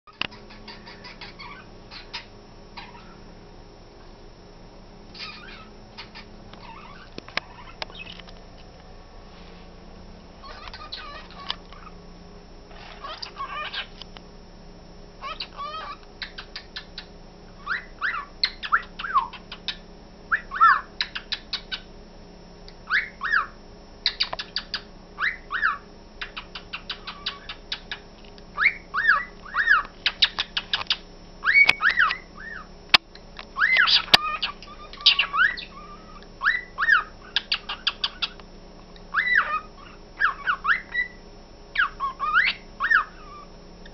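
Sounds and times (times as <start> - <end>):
clicky bird chatter: 0.2 - 3.0, 5.2 - 8.4, 10.5 - 11.9, 15.4 - 17.2, 18.4 - 19.8, 21.0 - 21.9, 24.0 - 24.9, 26.2 - 28.4, 29.0 - 32.2, 32.9 - 36.3, 37.3 - 39.5
birds chirping and whistling: 0.3 - 3.2, 5.1 - 8.3, 10.4 - 12.0, 12.7 - 14.0, 15.2 - 21.9, 22.9 - 28.0, 28.6 - 32.7, 33.6 - 38.4, 39.1 - 43.9.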